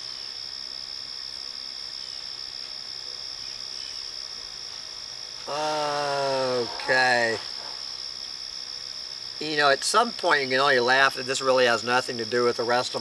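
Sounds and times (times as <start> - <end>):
crickets chirring: 0.0 - 13.0
man's drawn-out voice: 5.5 - 7.5.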